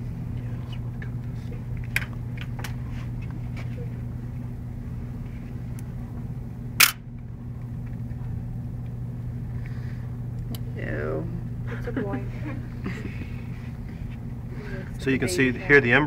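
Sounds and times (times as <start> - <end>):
low background hum: 0.0 - 16.0
sharp loud click: 6.8 - 7.0.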